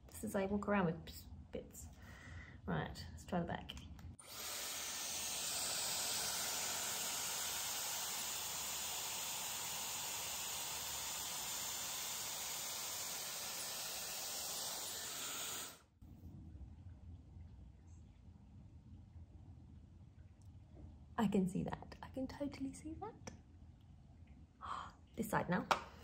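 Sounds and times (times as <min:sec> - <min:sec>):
hair dryer airflow hiss: 0:04.2 - 0:15.8.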